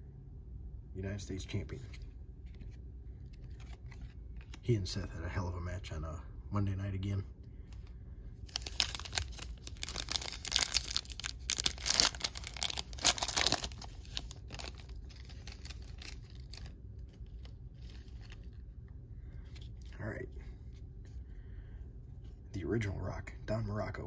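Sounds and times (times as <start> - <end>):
handling of cards: 1.7 - 4.7, 7.6 - 21.2
wrapper crinkling and tearing: 8.4 - 18.7.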